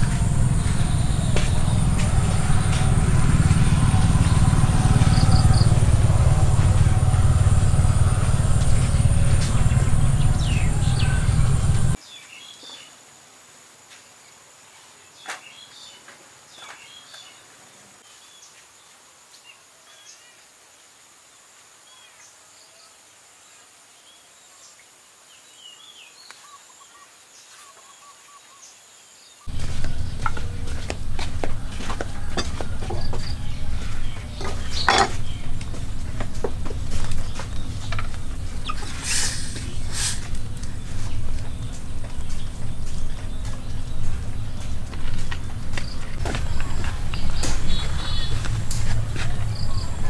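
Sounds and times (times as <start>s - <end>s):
high insect drone: 0.0s - 12.0s, 29.0s - 50.0s
loud low rumbling: 0.0s - 12.0s, 29.5s - 50.0s
birds chirping: 0.0s - 13.0s, 25.7s - 50.0s.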